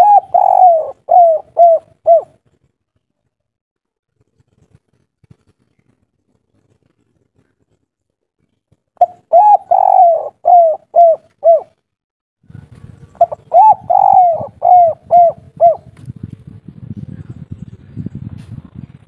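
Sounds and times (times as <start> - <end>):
dove cooing: 0.0 - 2.4, 9.0 - 11.8, 13.1 - 16.0.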